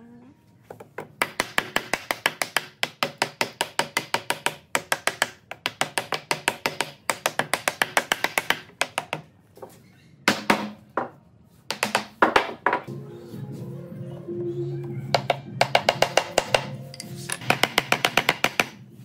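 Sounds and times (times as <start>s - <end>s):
rapid tapping on wood: 1.2s - 9.2s.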